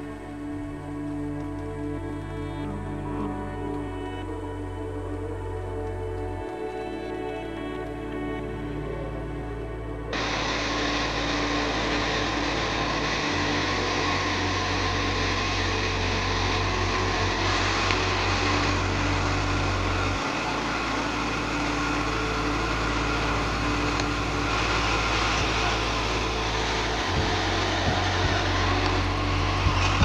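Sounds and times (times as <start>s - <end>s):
low hum: 0.0s - 30.0s.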